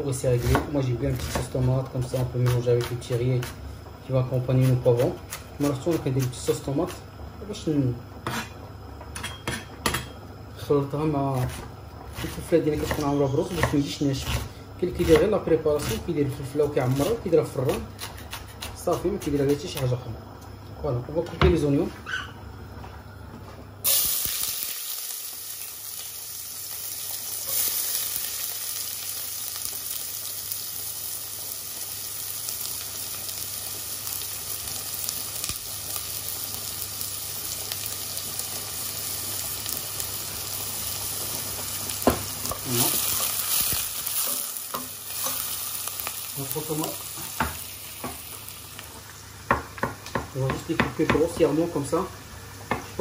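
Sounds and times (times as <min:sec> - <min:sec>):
onions sizzling in hot oil: 0:00.0 - 0:22.2, 0:23.8 - 0:53.0
stirring knocks in a pot: 0:49.4 - 0:51.5.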